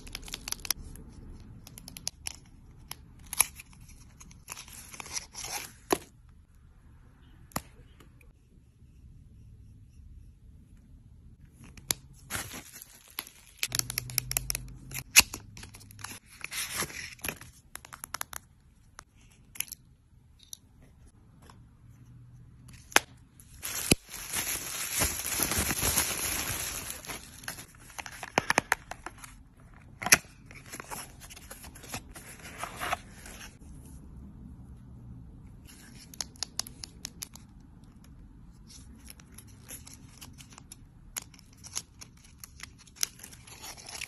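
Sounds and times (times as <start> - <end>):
plastic wrap crinkling: 23.4 - 27.7.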